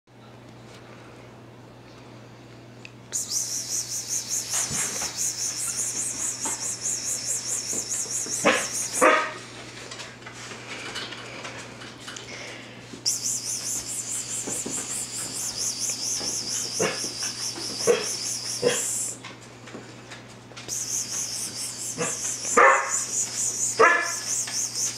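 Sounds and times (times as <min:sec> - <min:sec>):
puppies yipping and barking: 0:03.2 - 0:09.4, 0:13.1 - 0:19.2, 0:20.7 - 0:24.9.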